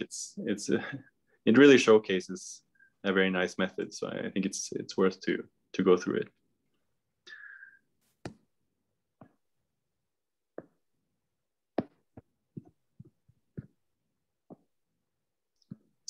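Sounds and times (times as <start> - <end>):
stylus tapping on screen: 10.5 - 10.8, 14.4 - 14.8.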